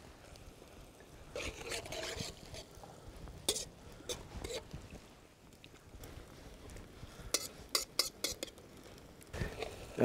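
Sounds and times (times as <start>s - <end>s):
spatula scraping a wok: 1.4s - 2.7s, 3.5s - 4.7s, 7.3s - 8.6s.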